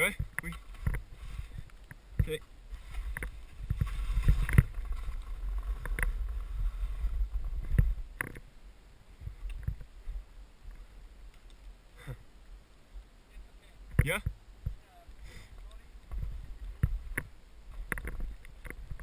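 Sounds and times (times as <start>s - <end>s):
wind rumbling on microphone: 0.0s - 19.0s
skis swishing through powder snow: 2.7s - 7.6s.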